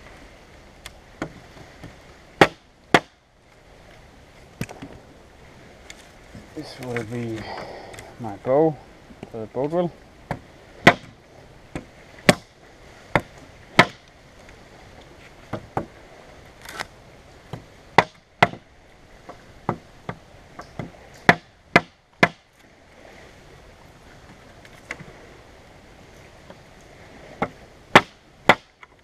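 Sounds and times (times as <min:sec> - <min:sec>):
knife chopping wood: 0:02.4 - 0:03.2, 0:10.3 - 0:11.2, 0:13.1 - 0:14.0, 0:18.0 - 0:18.6, 0:20.8 - 0:22.4, 0:27.4 - 0:28.7.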